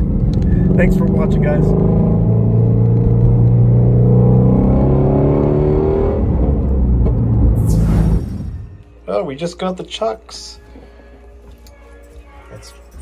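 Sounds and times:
car engine accelerating: 0:00.0 - 0:08.7.

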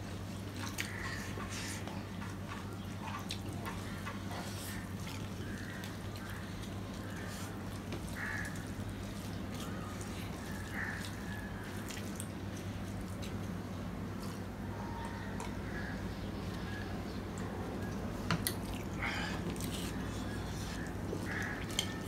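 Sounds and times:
mouths chewing and smacking: 0:00.1 - 0:22.0.

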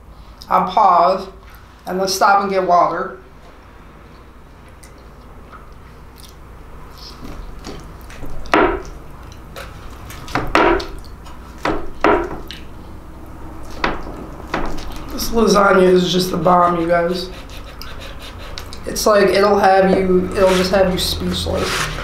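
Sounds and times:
spatula knocking on tray: 0:08.6 - 0:08.9, 0:11.7 - 0:12.4
fork scraping tray: 0:16.6 - 0:18.8, 0:19.8 - 0:22.0.

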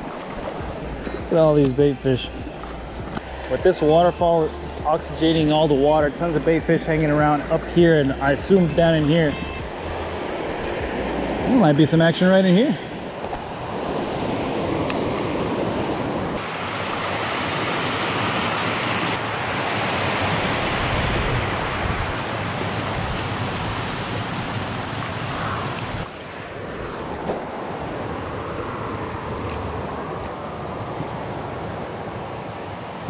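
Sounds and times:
creek water rushing over waterfall: 0:00.0 - 0:33.0.

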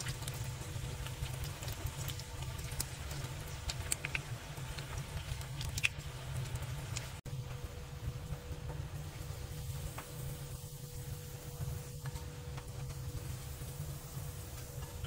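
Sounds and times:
food sizzling in hot oil: 0:00.0 - 0:07.2, 0:07.9 - 0:15.0
oil crackling and popping: 0:00.0 - 0:07.2.

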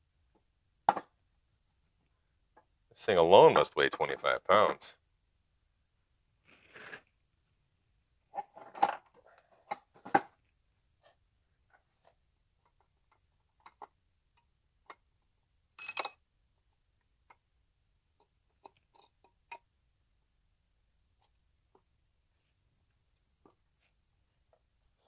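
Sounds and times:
ringing metal clink: 0:15.8 - 0:16.2.

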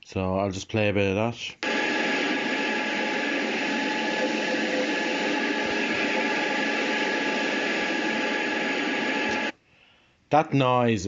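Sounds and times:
airplane cabin hiss and hum: 0:01.6 - 0:09.5
faint steady tones: 0:01.6 - 0:09.5.

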